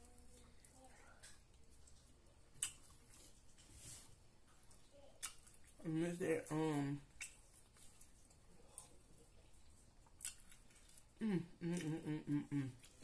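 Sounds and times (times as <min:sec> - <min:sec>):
person chewing: 0:00.0 - 0:05.8, 0:07.0 - 0:13.0
person humming mm-mm: 0:11.2 - 0:12.8.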